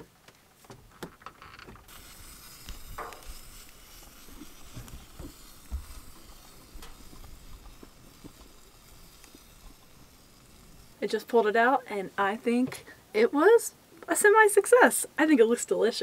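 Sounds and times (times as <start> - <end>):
fire crackles: 0.0 - 15.8
pellet fire hissing: 1.8 - 13.1.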